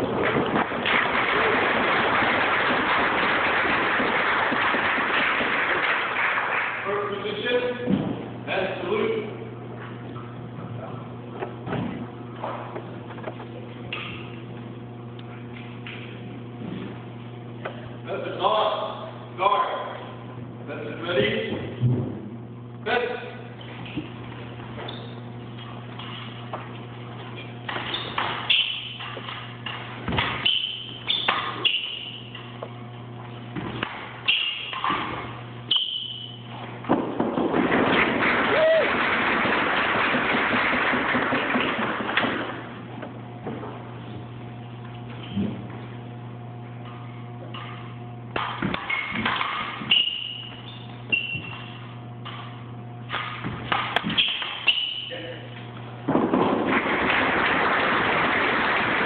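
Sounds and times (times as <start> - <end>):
steady low hum: 0.0 - 59.0
footwork thuds on floor: 7.8 - 8.3, 36.6 - 38.6, 56.0 - 57.7
fencing blades clashing: 24.9 - 26.5, 27.4 - 32.6, 33.8 - 36.4, 46.8 - 55.4.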